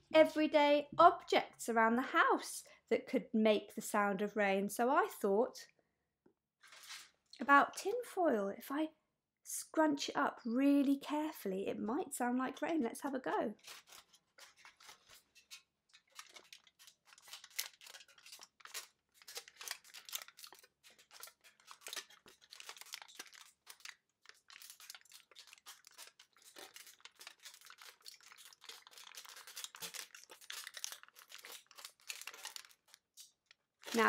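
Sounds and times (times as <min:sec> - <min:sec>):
aluminium foil crinkling: 0:13.6 - 0:34.0.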